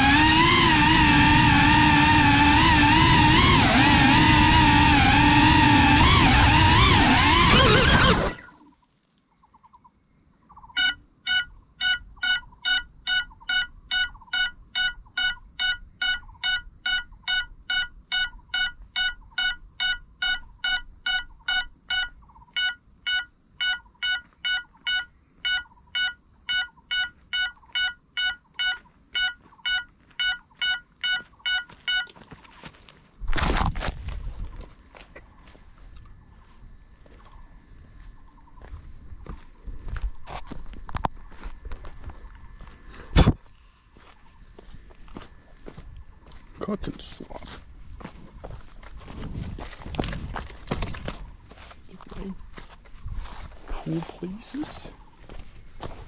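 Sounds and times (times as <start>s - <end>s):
short high beeps: 10.8s - 32.2s.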